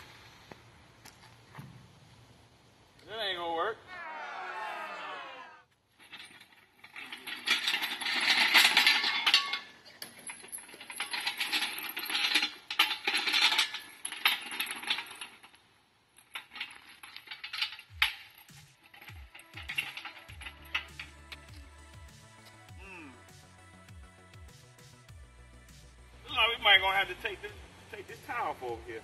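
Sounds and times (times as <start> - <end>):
engine hoist rattling over gravel: 5.9 - 15.6, 16.2 - 21.6.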